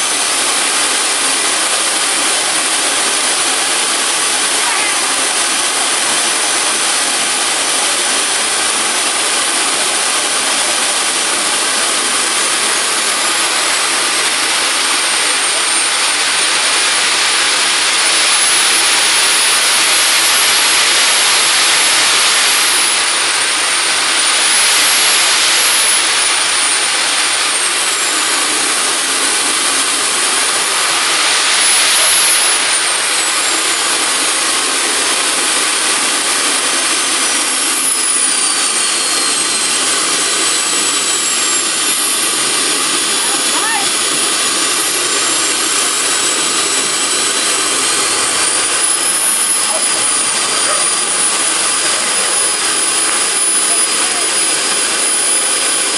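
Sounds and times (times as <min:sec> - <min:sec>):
high-pitched turbine whine: 0:00.0 - 0:55.9
jet engine running: 0:00.0 - 0:55.9.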